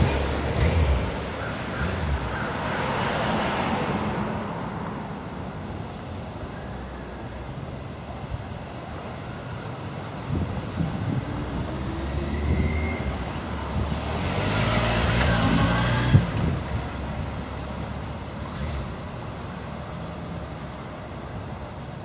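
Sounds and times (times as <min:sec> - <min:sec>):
car driving past: 0:11.3 - 0:17.0.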